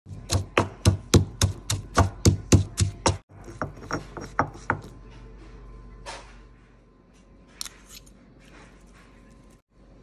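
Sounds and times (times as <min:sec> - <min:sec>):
stone pestle pounding in mortar: 0:00.1 - 0:05.0.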